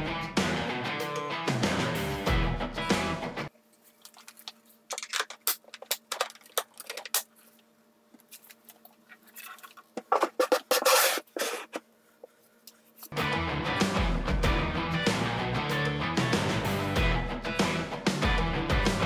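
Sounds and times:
rock guitar music: 0:00.0 - 0:03.5, 0:13.2 - 0:19.0.

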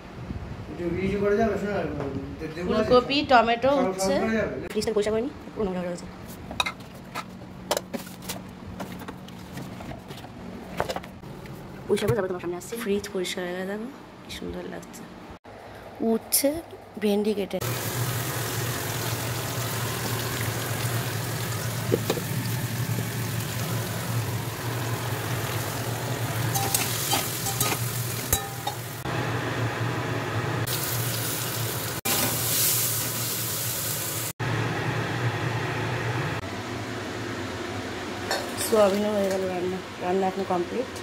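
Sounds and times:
vegetables sizzling in oil: 0:17.6 - 0:34.7.

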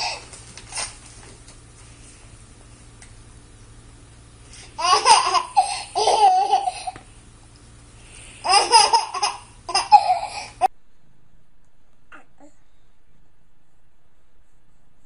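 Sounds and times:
baby laughing: 0:04.8 - 0:07.0, 0:08.4 - 0:10.7.

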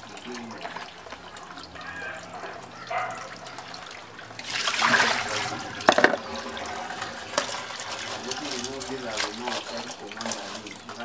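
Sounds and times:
hands splashing in water basin: 0:03.4 - 0:11.0.

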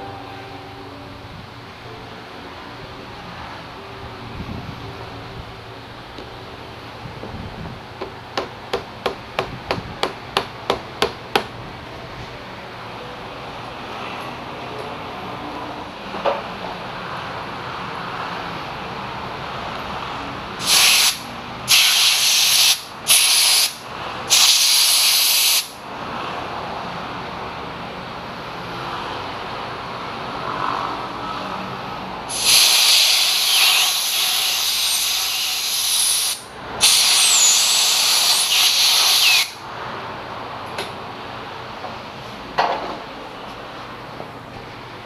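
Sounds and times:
compressed air blow gun hissing: 0:20.6 - 0:25.8, 0:32.3 - 0:39.6.

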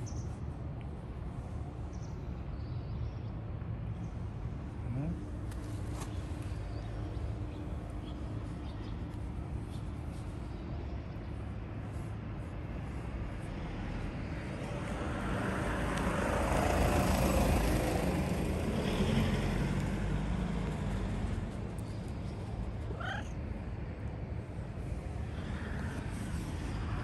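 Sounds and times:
vehicle passing by: 0:13.8 - 0:23.3.

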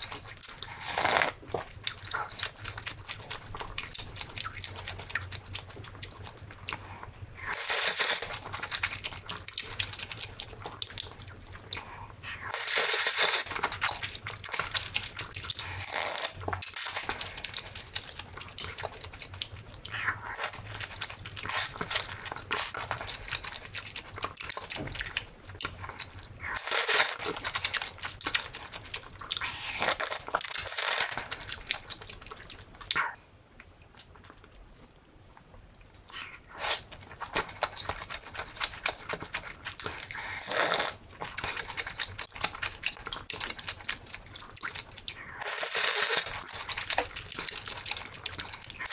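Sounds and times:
wet chewing and lip smacking: 0:00.0 - 0:12.6, 0:13.4 - 0:48.9
slurping noodles: 0:00.6 - 0:01.4, 0:40.0 - 0:41.0.

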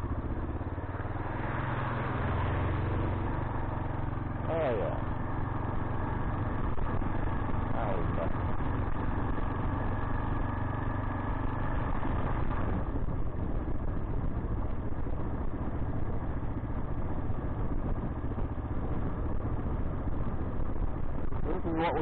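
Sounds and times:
motorcycle engine running: 0:00.0 - 0:22.0
road noise: 0:00.0 - 0:22.0
wind noise: 0:11.5 - 0:22.0.

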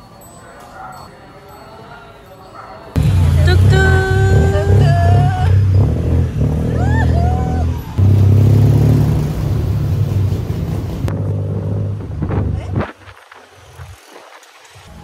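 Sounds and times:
engine running low drone: 0:03.0 - 0:12.8.

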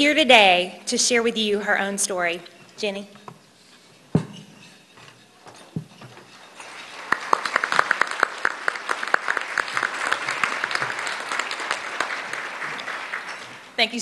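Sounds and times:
audience applauding: 0:06.6 - 0:13.8.

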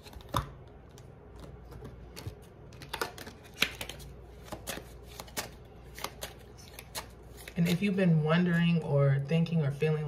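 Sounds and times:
cards being shuffled: 0:00.0 - 0:08.0.

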